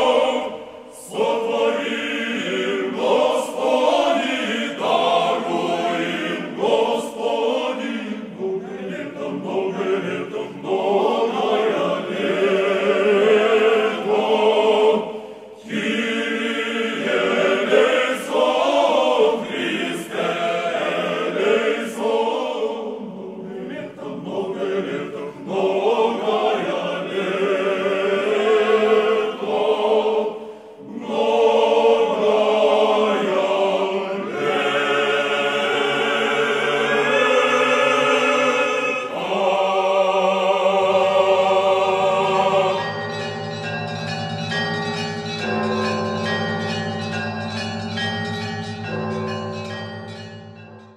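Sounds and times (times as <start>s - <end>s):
choir singing: 0.0s - 50.9s
church bells ringing: 41.8s - 50.9s.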